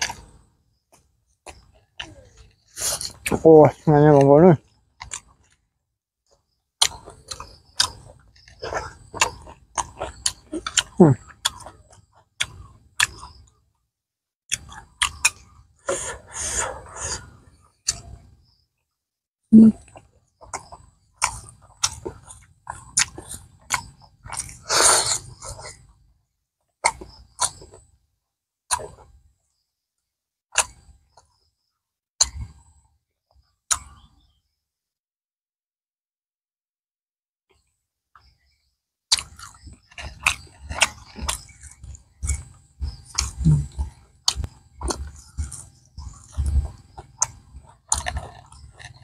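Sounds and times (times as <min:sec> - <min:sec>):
crisp chewing crunches: 0:00.0 - 0:03.4, 0:04.6 - 0:05.7, 0:06.3 - 0:13.6, 0:14.5 - 0:18.3, 0:19.7 - 0:26.0, 0:26.8 - 0:27.9, 0:28.7 - 0:29.2, 0:30.6 - 0:31.3, 0:39.1 - 0:49.0.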